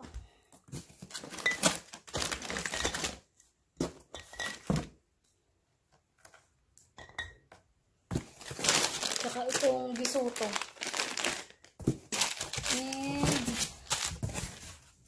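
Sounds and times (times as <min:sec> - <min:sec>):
plastic bags rustling: 0:00.7 - 0:03.3, 0:08.1 - 0:15.0.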